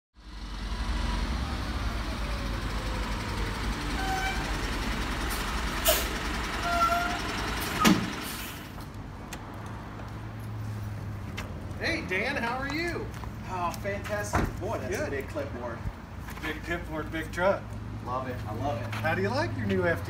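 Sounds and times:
truck diesel engine rumbling: 0:00.2 - 0:09.2
brake squeaks: 0:03.9 - 0:04.6, 0:05.9 - 0:08.7.

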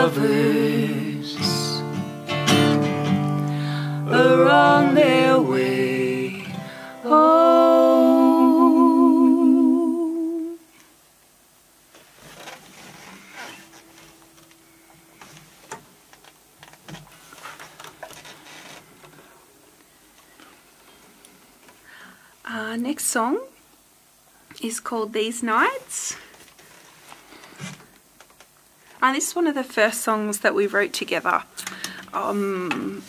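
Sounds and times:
person singing with vibrato: 0:00.0 - 0:02.9, 0:03.5 - 0:10.8
faint clicks and rustles: 0:11.9 - 0:21.8, 0:25.7 - 0:29.0.

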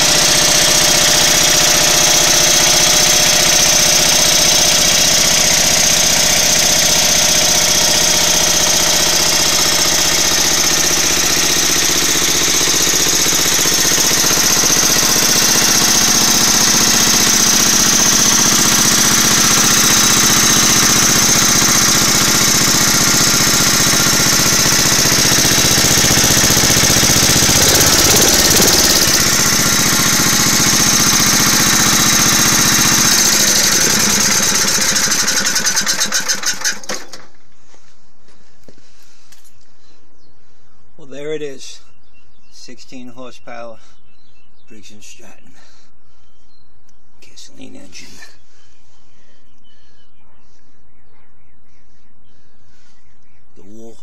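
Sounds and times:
generator engine running: 0:00.0 - 0:37.8.

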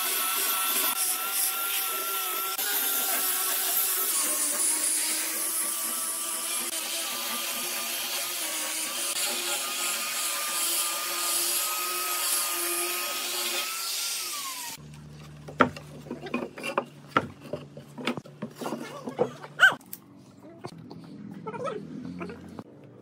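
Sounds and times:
angle grinder sanding wood: 0:00.0 - 0:14.8.

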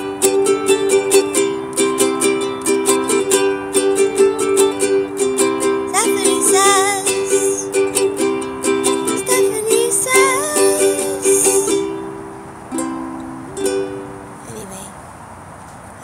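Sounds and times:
ukulele strumming: 0:00.0 - 0:14.8
person singing high note: 0:05.9 - 0:07.8, 0:09.2 - 0:11.8.

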